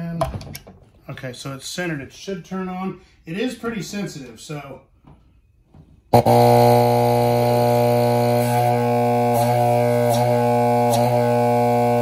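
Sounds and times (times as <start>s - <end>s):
air pump buzzing hum: 6.1s - 12.0s.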